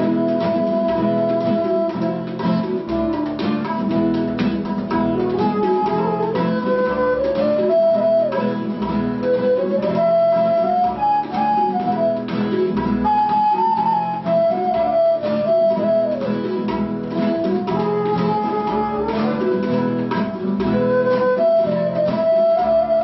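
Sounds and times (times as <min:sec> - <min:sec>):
acoustic guitar: 0:00.0 - 0:23.0
bamboo flute melody: 0:00.0 - 0:23.0
tabla drums: 0:00.0 - 0:23.0.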